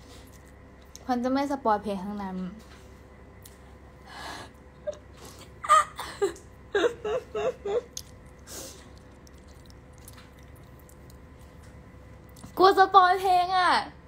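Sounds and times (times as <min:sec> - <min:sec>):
woman laughing: 0:04.8 - 0:08.0.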